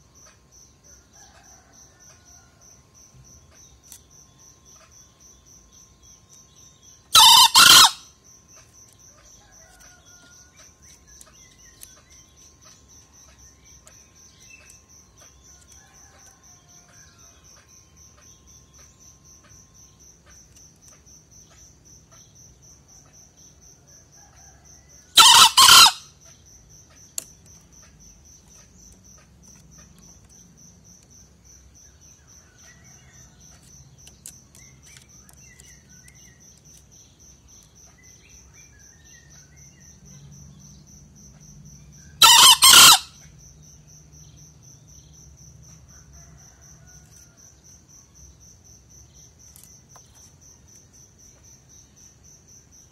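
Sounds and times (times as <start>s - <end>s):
high insect trill: 0.0s - 52.9s
junglefowl crowing: 7.1s - 8.1s, 24.2s - 26.1s, 42.2s - 43.2s.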